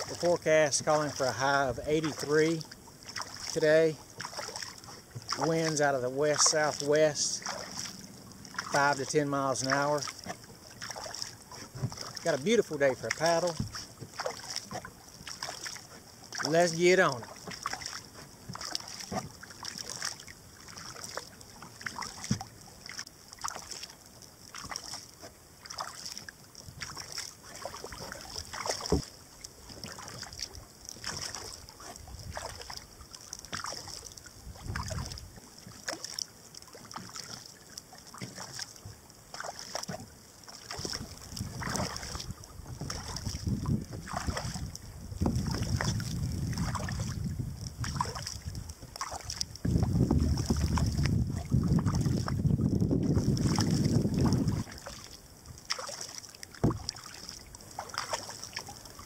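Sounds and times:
kayak paddle splashing in water: 0:00.0 - 0:59.0
wind buffeting microphone: 0:34.5 - 0:35.2, 0:40.9 - 0:48.8, 0:49.5 - 0:54.8.

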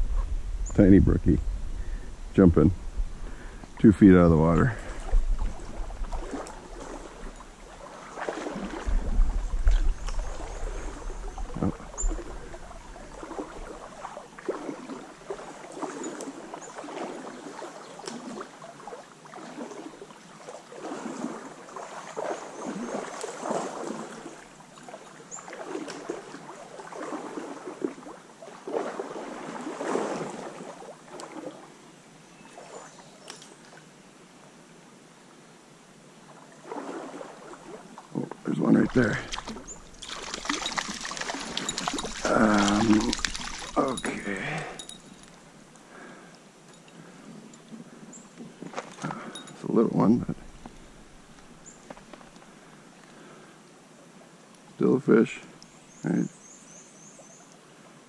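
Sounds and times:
low wind rumble on microphone: 0:00.0 - 0:07.6, 0:08.6 - 0:13.8
stream current flowing: 0:01.8 - 0:56.3
water sloshing from wading: 0:04.4 - 0:31.8, 0:32.4 - 0:33.9, 0:36.3 - 0:53.2.

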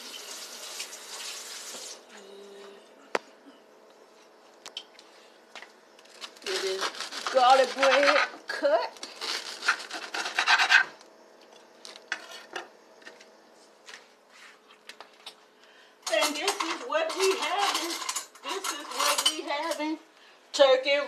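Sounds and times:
utensils clinking on pan and plates: 0:16.0 - 0:20.0.

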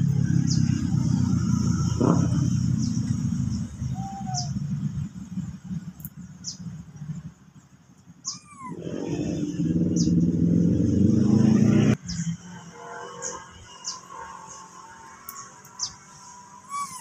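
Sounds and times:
vehicle engine running: 0:00.0 - 0:12.2.

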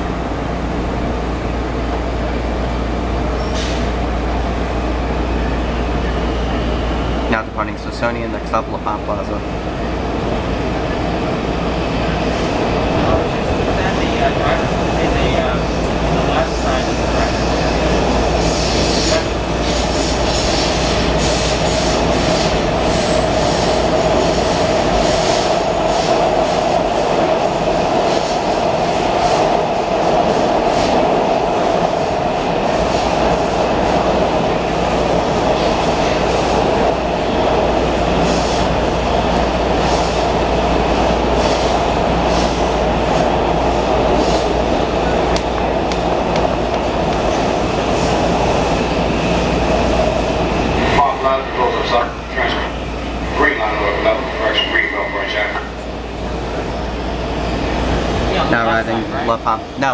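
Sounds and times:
steel wheels on rail: 0:15.8 - 0:51.0.

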